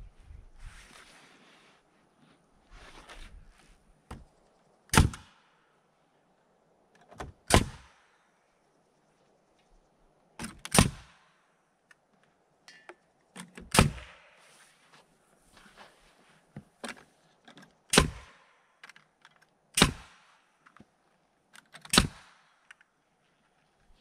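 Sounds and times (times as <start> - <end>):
nail gun shots: 4.9 - 5.4, 7.4 - 8.0, 10.4 - 11.2, 13.6 - 14.2, 17.9 - 18.5, 19.8 - 20.4, 21.9 - 22.5.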